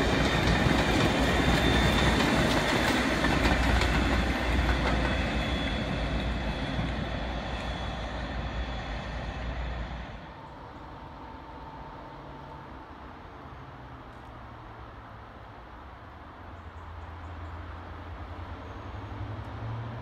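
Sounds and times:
rail wheel clatter: 0:00.0 - 0:12.7
diesel locomotive engine rumble: 0:00.0 - 0:20.0.

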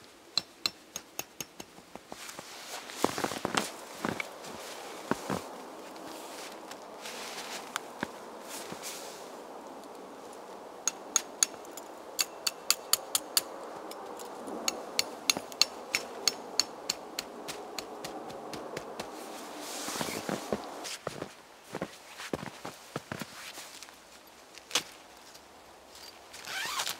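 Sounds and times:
metal stakes tapped with hatchet: 0:00.3 - 0:01.8, 0:10.8 - 0:13.5, 0:14.7 - 0:17.2.

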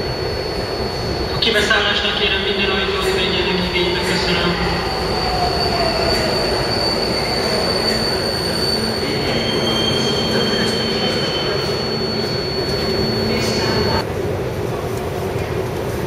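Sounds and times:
metro train wheels rumbling: 0:00.0 - 0:16.0
train brake whine: 0:03.5 - 0:14.0.

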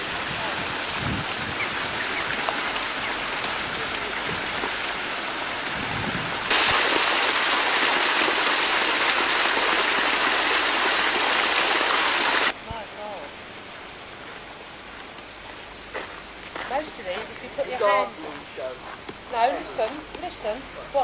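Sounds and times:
waterfall splashing into pond: 0:00.0 - 0:12.6.

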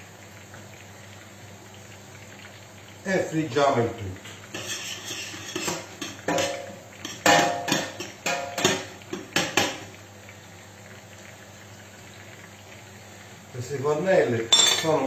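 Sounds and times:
food frying in oil: 0:00.0 - 0:15.0
metal utensil clinking on pans: 0:04.6 - 0:09.8, 0:14.5 - 0:15.0.

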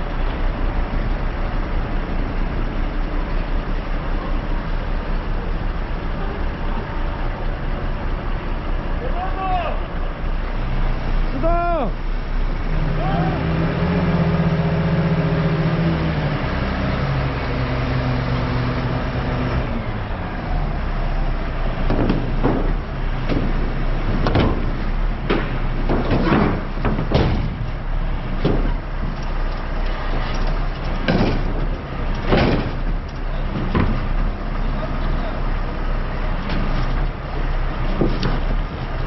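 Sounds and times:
heavy truck engine running: 0:00.0 - 0:39.0
irregular knocks and bangs: 0:21.8 - 0:29.2, 0:30.8 - 0:34.3.

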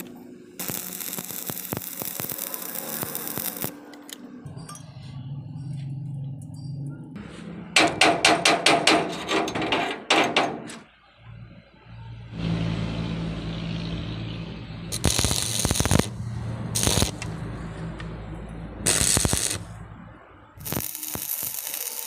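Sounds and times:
welding arc crackling and hissing: 0:00.0 - 0:03.8, 0:14.9 - 0:17.4, 0:18.8 - 0:19.8, 0:20.6 - 0:22.0
low hum: 0:00.0 - 0:07.8, 0:11.2 - 0:21.3
hammer chipping weld slag: 0:07.8 - 0:10.6, 0:14.9 - 0:16.2, 0:18.9 - 0:19.7, 0:20.6 - 0:22.0.

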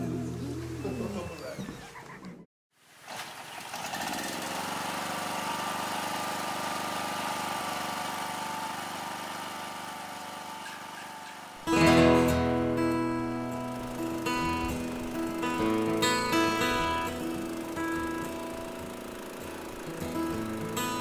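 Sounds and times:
petrol generator running: 0:03.2 - 0:21.0
acoustic guitar music: 0:10.6 - 0:21.0.

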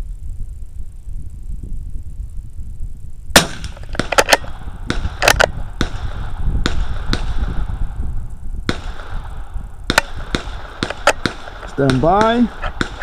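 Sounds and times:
wind rumbling on microphone: 0:00.0 - 0:13.0
sharp gunshot cracks: 0:03.4 - 0:07.7, 0:08.7 - 0:13.0.

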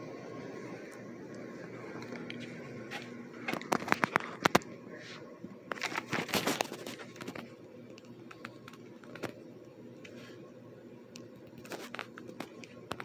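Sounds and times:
ceiling fans humming: 0:00.0 - 0:13.0
quick irregular clicks and taps: 0:07.2 - 0:09.4.

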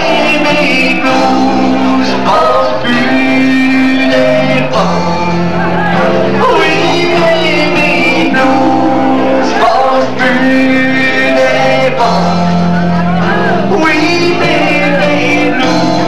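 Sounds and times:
song with singing over instruments: 0:00.0 - 0:16.0.

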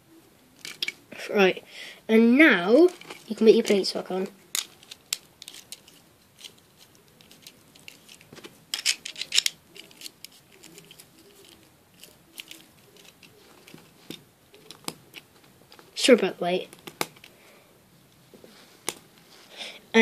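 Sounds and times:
plastic toy bricks clicking: 0:00.6 - 0:01.0, 0:04.5 - 0:15.8.

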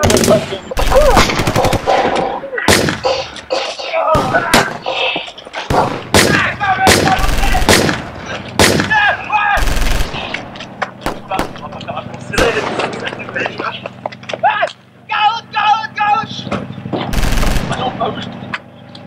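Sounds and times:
automatic gunfire burst: 0:00.0 - 0:03.0, 0:05.7 - 0:08.9, 0:09.6 - 0:10.4, 0:17.1 - 0:18.0
gunshots echoing: 0:00.0 - 0:11.7, 0:12.4 - 0:13.3, 0:17.1 - 0:18.2.

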